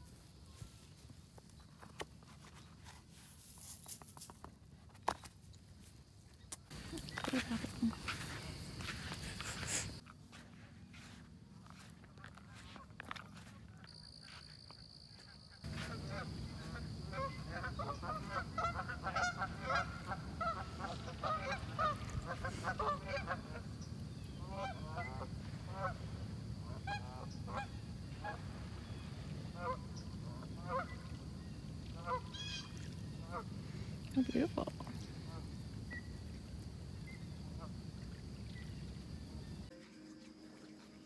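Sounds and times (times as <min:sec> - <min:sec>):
geese honking: 0:15.2 - 0:23.8, 0:24.4 - 0:28.9, 0:29.5 - 0:33.5.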